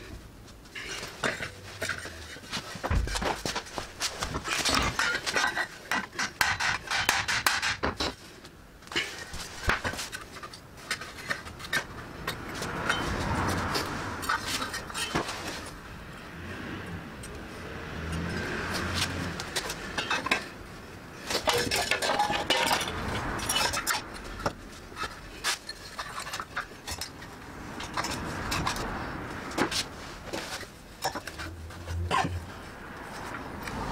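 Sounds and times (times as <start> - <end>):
metal tools clattering on concrete: 0.8 - 3.6, 4.2 - 8.2, 12.6 - 15.8, 19.6 - 20.6, 21.2 - 28.8, 29.5 - 32.4.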